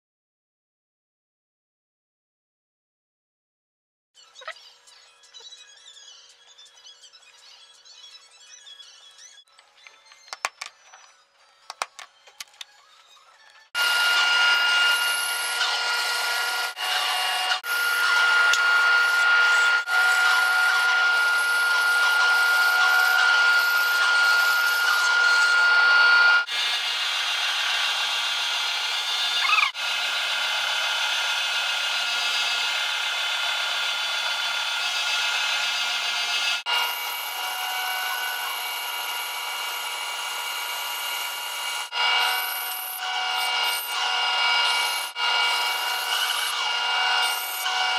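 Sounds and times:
bandsaw cutting wood: 0:13.8 - 0:47.9.

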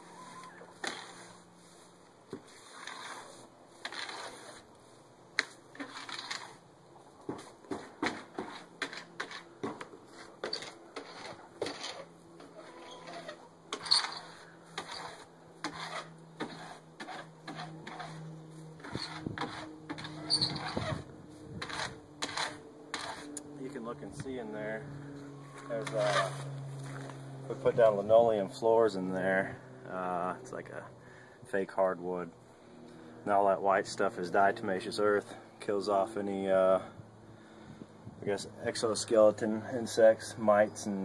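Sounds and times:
rake scraping bedding: 0:00.0 - 0:24.8, 0:25.4 - 0:29.4.

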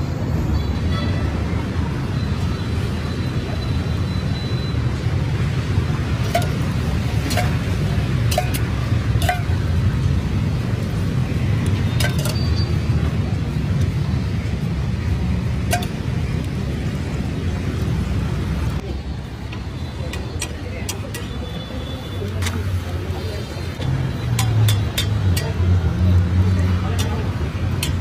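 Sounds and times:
metal spatula tapping griddle: 0:06.2 - 0:09.6, 0:12.0 - 0:12.4, 0:15.7 - 0:16.0, 0:24.3 - 0:25.6, 0:26.9 - 0:28.0.

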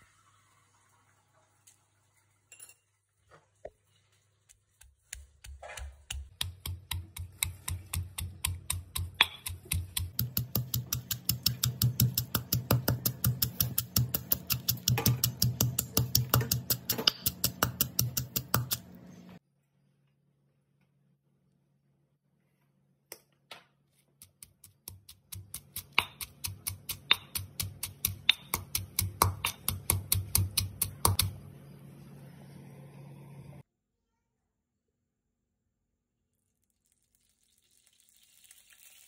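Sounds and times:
stone pestle pounding in mortar: 0:05.1 - 0:18.8, 0:24.5 - 0:31.3.

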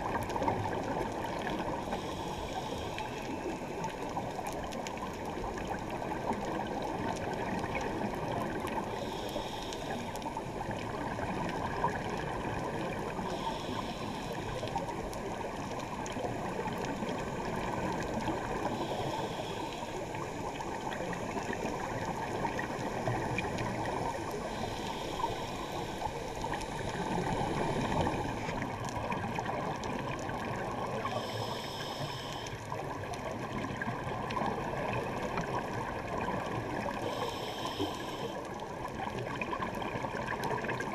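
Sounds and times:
underwater bubbling: 0:00.0 - 0:40.9
regulator hiss: 0:09.0 - 0:10.2, 0:13.2 - 0:14.7, 0:18.7 - 0:21.0, 0:23.8 - 0:28.6, 0:31.0 - 0:32.6, 0:37.0 - 0:38.4.

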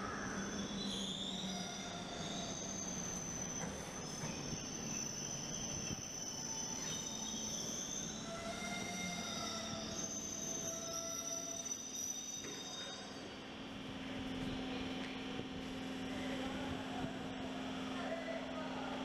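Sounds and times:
train wheels squealing: 0:00.0 - 0:13.9.

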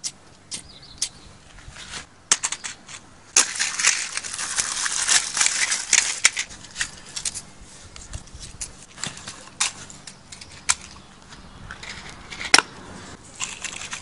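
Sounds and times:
paper and cardboard crumpling: 0:03.4 - 0:07.4.

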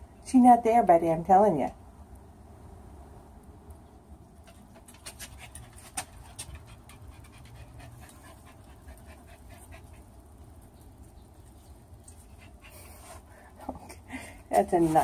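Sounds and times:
small dog panting: 0:04.4 - 0:10.8, 0:11.5 - 0:13.8.

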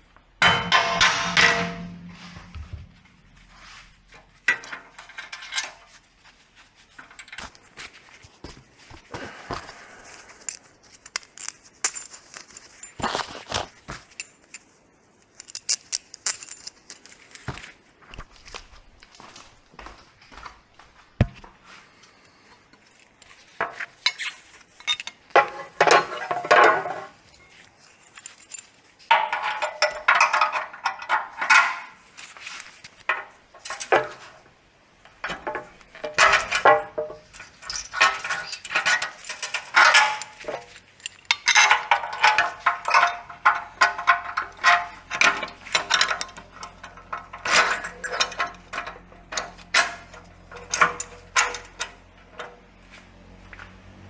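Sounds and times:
metallic clicking and clinking: 0:10.0 - 0:17.5, 0:22.7 - 0:34.4, 0:35.1 - 0:52.6.

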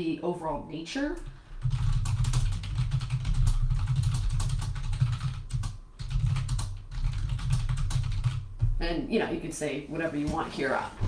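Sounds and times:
fast keyboard typing: 0:01.6 - 0:08.5.

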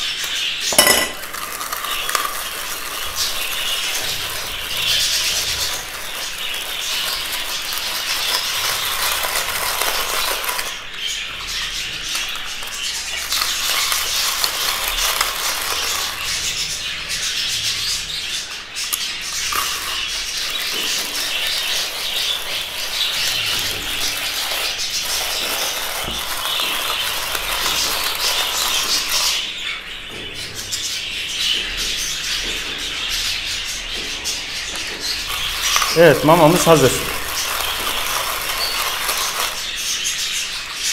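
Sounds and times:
budgerigars chattering and chirping: 0:00.0 - 0:40.9
rotary grater rasping: 0:37.1 - 0:39.8.

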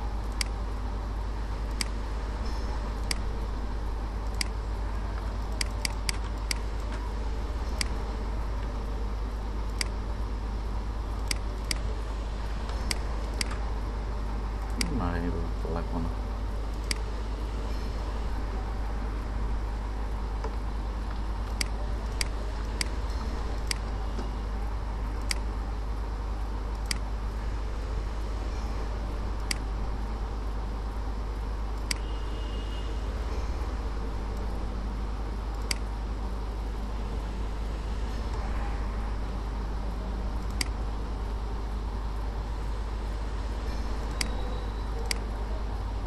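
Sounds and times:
low hum and hiss: 0:00.0 - 0:46.0
computer mouse clicking: 0:00.2 - 0:00.6, 0:01.7 - 0:02.0, 0:04.2 - 0:04.6, 0:05.2 - 0:07.0, 0:07.7 - 0:08.0, 0:09.7 - 0:10.0, 0:11.2 - 0:11.9, 0:12.7 - 0:13.6, 0:14.6 - 0:15.0, 0:20.4 - 0:23.0, 0:25.2 - 0:25.5, 0:26.7 - 0:27.1, 0:31.8 - 0:32.1, 0:35.6 - 0:35.9, 0:40.4 - 0:40.8, 0:44.0 - 0:45.3.

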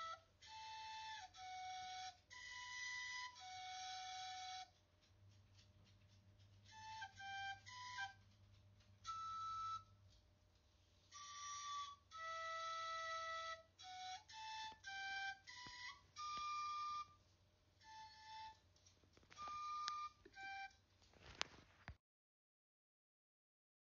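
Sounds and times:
slow breathy flute melody: 0:00.0 - 0:04.8, 0:06.7 - 0:08.3, 0:09.0 - 0:10.0, 0:11.1 - 0:17.2, 0:17.8 - 0:18.7, 0:19.3 - 0:20.8.

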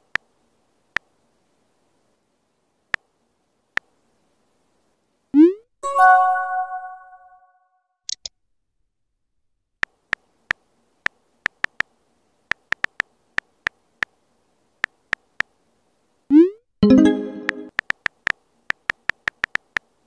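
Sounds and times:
chime: 0:05.8 - 0:07.3
high clicks: 0:16.8 - 0:19.9.

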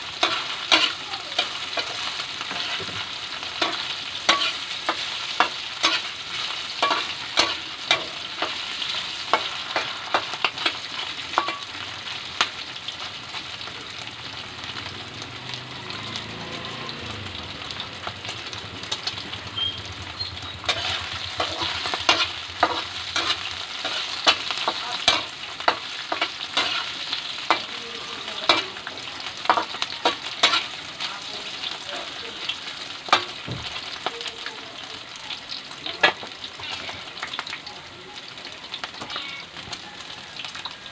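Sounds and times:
metal spatula scraping wok: 0:00.0 - 0:12.6, 0:19.5 - 0:33.9
pork sizzling in hot oil: 0:00.0 - 0:40.9.

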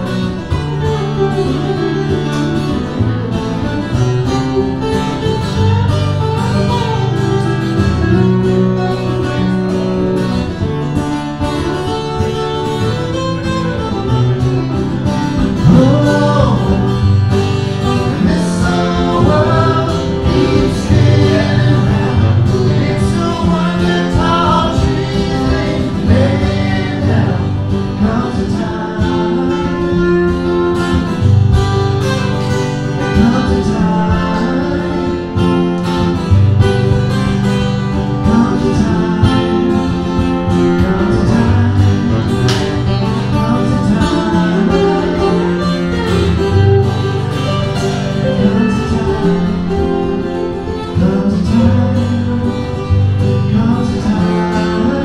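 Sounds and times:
acoustic guitars strumming: 0:00.0 - 0:55.0
harmonica: 0:00.0 - 0:55.0
person singing: 0:15.3 - 0:31.0, 0:32.9 - 0:35.8, 0:38.2 - 0:55.0.

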